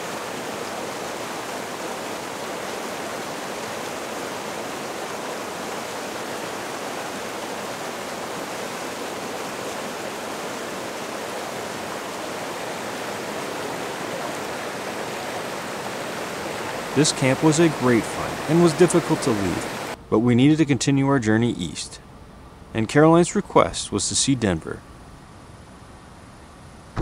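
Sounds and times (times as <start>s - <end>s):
creek rushing over rocks: 0.0s - 20.0s.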